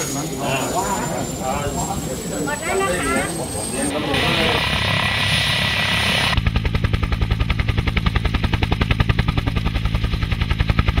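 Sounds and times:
helicopter rotor chopping: 0.0 - 11.0.

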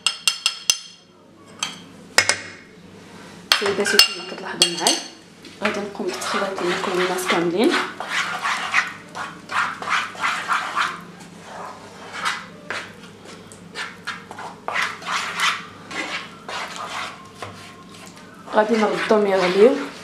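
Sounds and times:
spoon scraping sauce in frying pan: 5.7 - 20.0.

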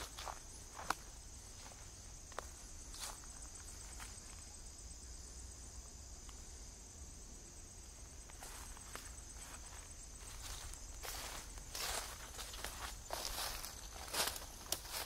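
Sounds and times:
footsteps: 0.0 - 4.4, 8.3 - 15.0
insects trilling: 0.0 - 15.0.

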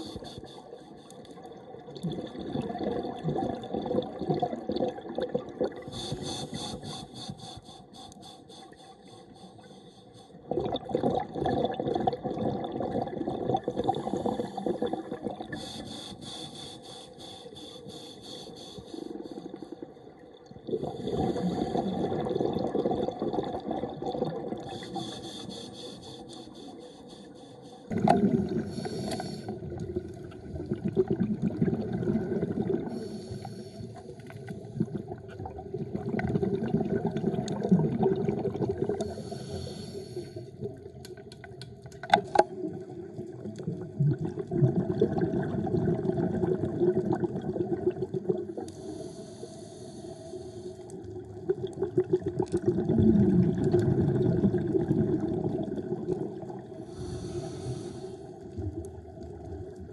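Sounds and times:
scuba regulator breathing: 0.0 - 1.4, 5.8 - 10.5, 13.7 - 19.9, 20.8 - 22.3, 24.6 - 29.8, 32.7 - 34.8, 38.9 - 40.6, 48.6 - 51.0, 56.8 - 58.5
exhaled bubbles gurgling: 0.0 - 7.6, 8.6 - 17.1, 18.8 - 26.8, 27.8 - 59.9.

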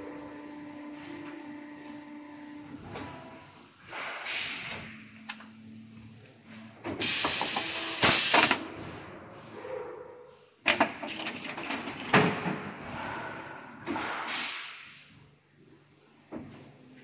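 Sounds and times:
compressed air hiss: 3.8 - 4.7, 7.0 - 8.6.

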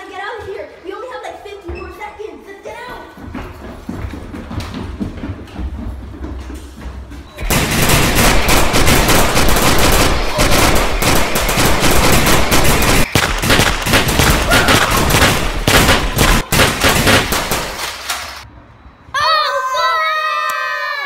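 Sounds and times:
automatic gunfire: 7.4 - 18.1.

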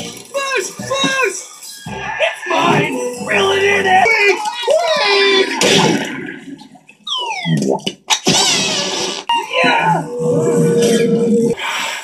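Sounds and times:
cartoon crash: 7.1 - 9.3.

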